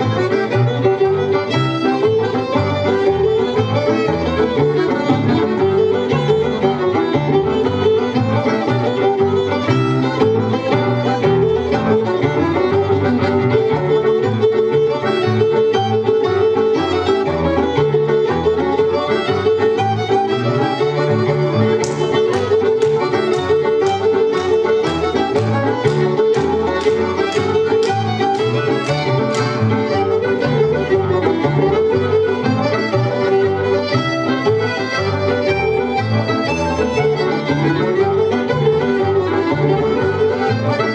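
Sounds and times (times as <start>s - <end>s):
fiddle dance tune: 0.0s - 40.9s
hands clapping: 21.5s - 30.8s.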